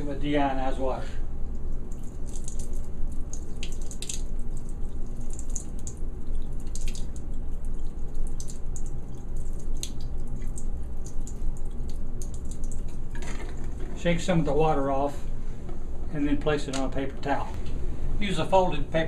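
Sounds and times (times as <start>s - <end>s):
water dripping into sink: 1.5s - 13.6s
water squirted from wash bottle: 1.9s - 13.8s.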